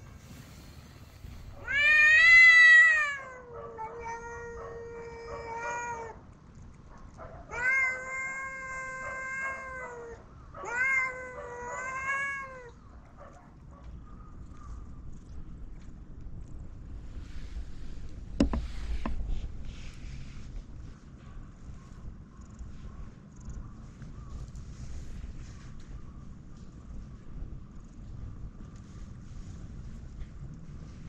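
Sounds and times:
cats yowling: 1.4 - 6.4, 7.4 - 12.8.

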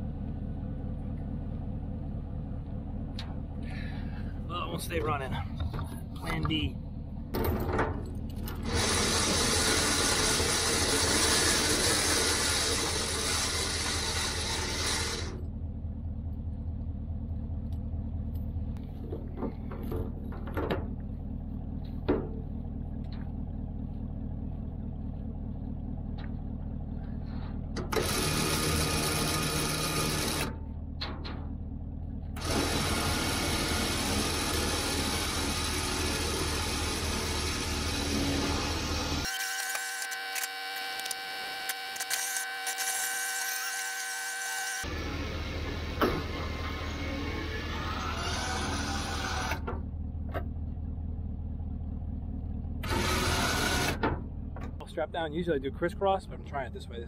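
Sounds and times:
low engine hum: 0.0 - 39.3, 44.8 - 57.0
electric winch pulling: 8.4 - 15.4, 27.9 - 30.6, 32.4 - 49.7, 52.8 - 54.1.

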